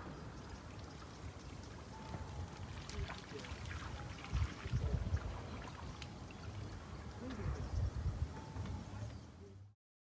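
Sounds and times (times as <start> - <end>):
quiet outdoor ambience: 0.0 - 9.8
faint indistinct voices: 6.9 - 9.8.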